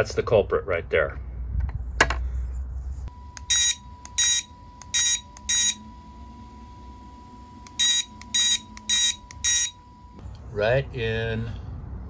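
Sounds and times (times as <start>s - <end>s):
harsh buzzy beeps: 3.1s - 10.2s.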